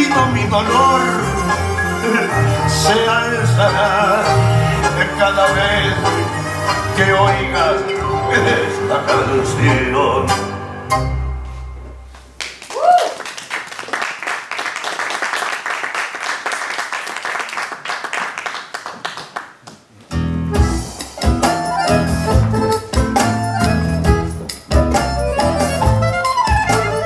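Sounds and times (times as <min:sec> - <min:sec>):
tango music with bass beat: 0:00.0 - 0:12.4, 0:20.1 - 0:27.0
audience applause: 0:12.4 - 0:19.6
rising whoop: 0:12.7 - 0:13.2.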